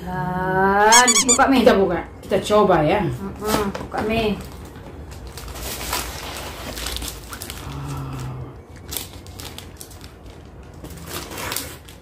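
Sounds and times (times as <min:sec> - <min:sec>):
paper wrapper rustling and crackling: 0:05.2 - 0:07.6, 0:08.9 - 0:12.0.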